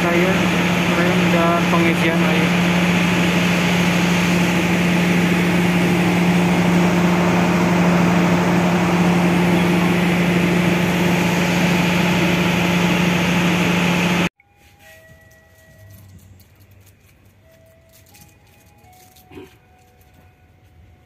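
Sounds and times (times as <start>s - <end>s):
diesel generator droning: 0.0s - 14.3s.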